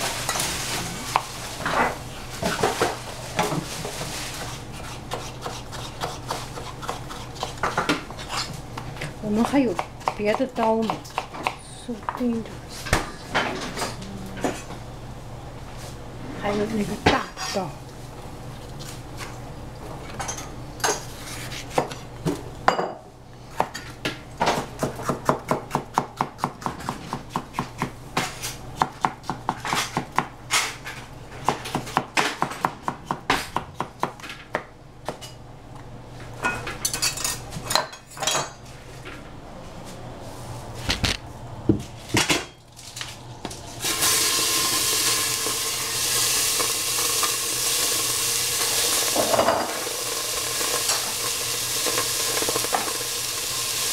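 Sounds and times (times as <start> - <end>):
kitchen clatter: 0.0 - 11.5, 36.4 - 38.6, 43.8 - 53.4
knife chopping on cutting board: 4.4 - 8.5, 9.4 - 12.3, 23.6 - 30.3, 31.4 - 35.2
food sizzling in hot oil: 43.8 - 53.9.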